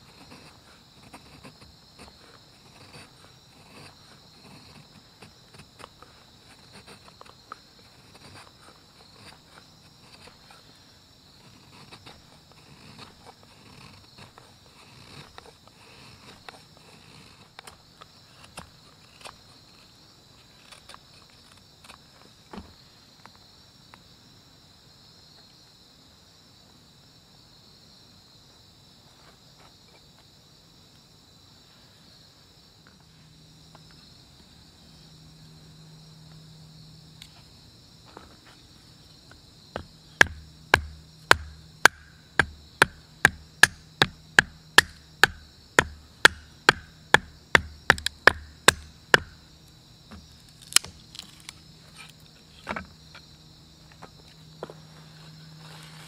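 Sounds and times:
crickets chirping: 0.0 - 56.0
knife knocking through firewood: 39.7 - 49.4, 50.1 - 51.0.

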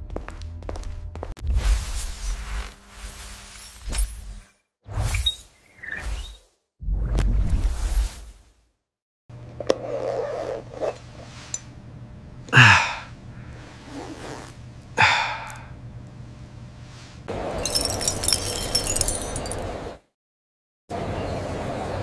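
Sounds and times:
metallic jingling of bangles: 17.6 - 19.6.

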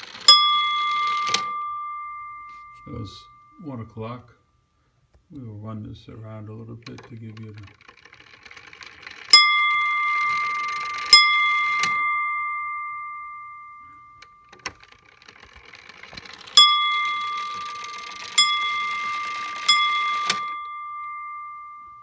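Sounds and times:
clock bells ringing: 0.0 - 4.4, 7.6 - 22.0.

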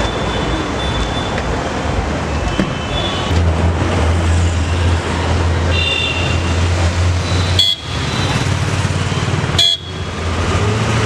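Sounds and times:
road traffic hum: 0.0 - 11.0
car horn toot: 5.7 - 6.6, 7.4 - 8.2, 9.6 - 10.1.

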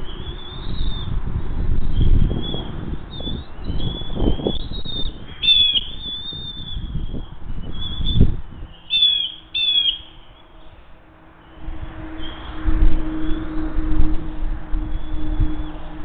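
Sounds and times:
eaglets whistled begging calls: 1.9 - 10.5
eaglets squealing: 2.3 - 10.5.

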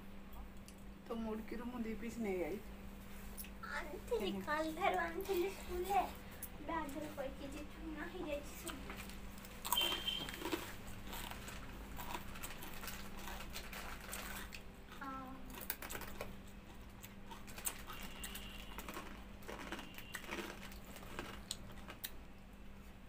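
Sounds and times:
chewing crunches: 8.6 - 22.2.

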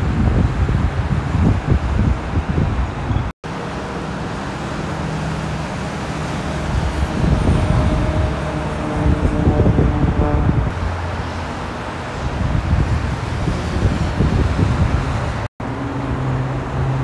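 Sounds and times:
freeway traffic rushing: 0.0 - 17.0
wind buffeting microphone: 0.0 - 17.0.

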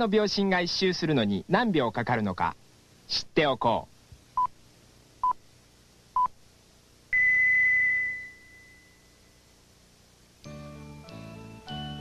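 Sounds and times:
short electronic beeps: 7.1 - 9.0
long higher beep: 7.1 - 9.2.

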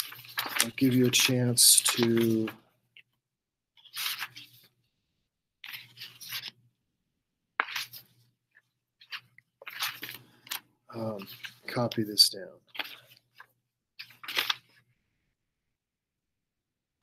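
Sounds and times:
crackling rustling handling noise: 0.0 - 3.2, 3.8 - 4.8, 5.6 - 6.7, 7.6 - 14.9.

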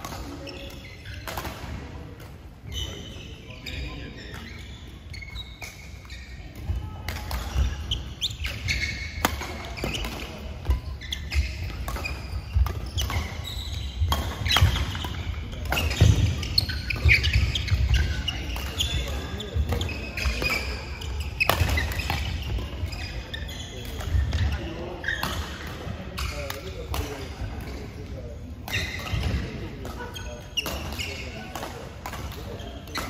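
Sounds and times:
players' voices: 0.0 - 33.0
shoes squeaking on court: 0.0 - 33.0
racket striking shuttlecock: 6.5 - 13.4.

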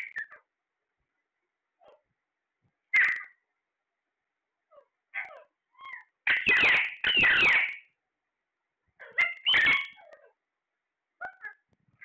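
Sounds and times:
parakeets squawking: 2.9 - 3.4, 5.2 - 7.9, 9.0 - 10.3.

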